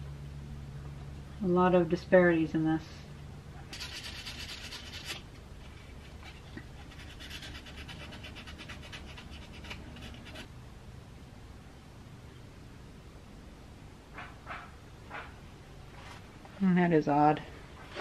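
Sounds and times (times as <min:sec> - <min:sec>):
steady low hum: 0:00.0 - 0:18.0
hand scrubbing metal: 0:03.7 - 0:10.5.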